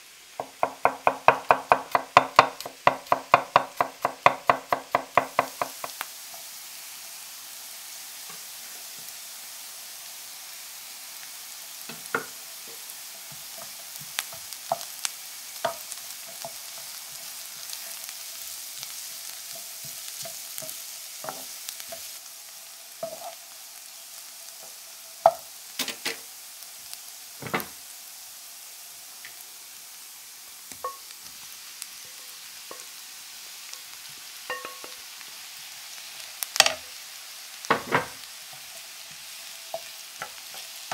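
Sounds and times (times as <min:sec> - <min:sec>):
onions sizzling in a frying pan: 0:00.0 - 0:40.9
wooden spatula scraping and knocking pan: 0:19.5 - 0:22.1, 0:27.4 - 0:27.8, 0:37.7 - 0:40.9.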